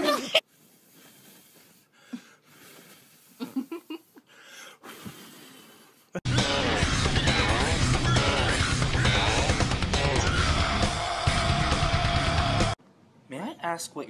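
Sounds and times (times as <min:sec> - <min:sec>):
loud music: 0:06.3 - 0:12.8.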